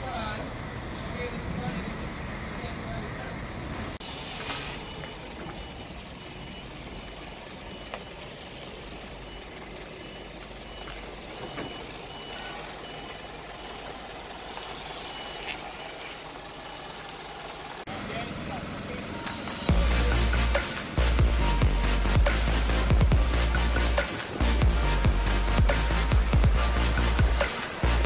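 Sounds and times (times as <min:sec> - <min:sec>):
truck engine running: 0:00.0 - 0:28.0
reversing alarm beeping: 0:04.0 - 0:17.6, 0:19.2 - 0:28.0.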